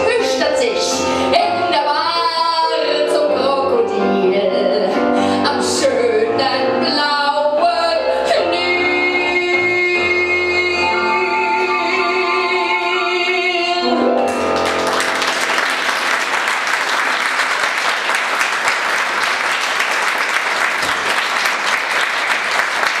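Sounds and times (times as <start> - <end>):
woman singing: 0.0 - 14.1
musical accompaniment: 0.0 - 23.0
audience applause: 14.3 - 23.0.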